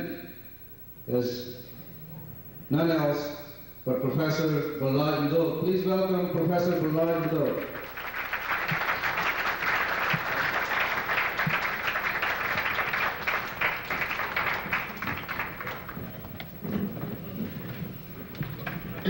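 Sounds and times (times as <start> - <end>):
audience applauding: 6.4 - 19.0.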